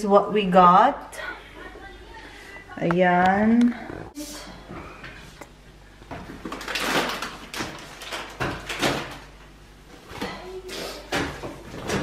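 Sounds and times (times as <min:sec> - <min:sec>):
plastic bag rustling: 0:06.2 - 0:09.4.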